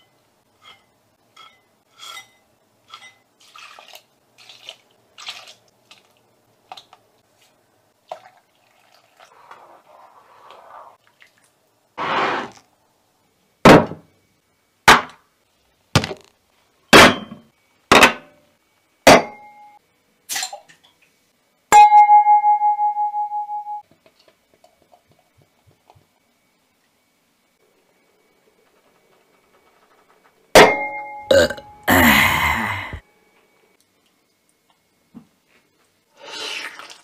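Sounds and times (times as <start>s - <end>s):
ringing metallic clang: 19.1s - 19.8s, 30.6s - 31.3s.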